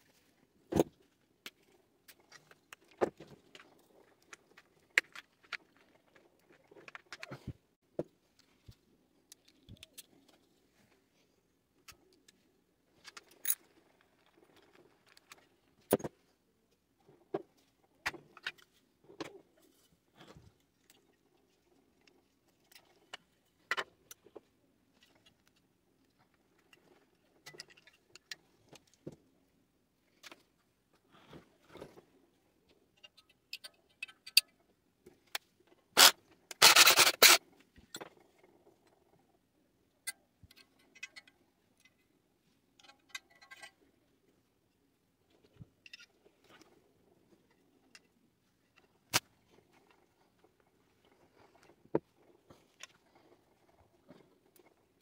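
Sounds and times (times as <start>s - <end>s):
metallic clicks and clinks: 33.0s - 34.5s.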